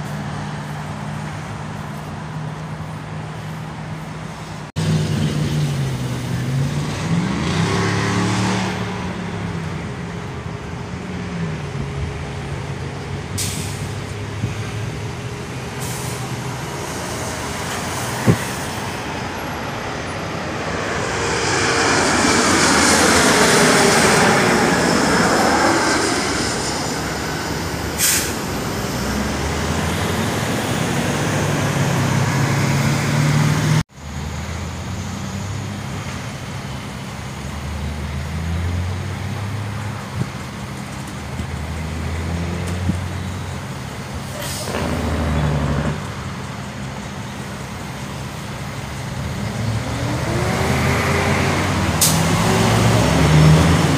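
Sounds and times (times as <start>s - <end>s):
truck and car engines: 0.0s - 53.9s
jet aircraft passing overhead: 4.7s - 33.8s.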